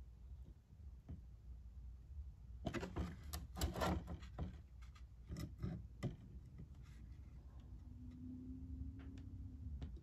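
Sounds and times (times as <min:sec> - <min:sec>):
plastic object rustling and knocking: 0:02.6 - 0:07.0.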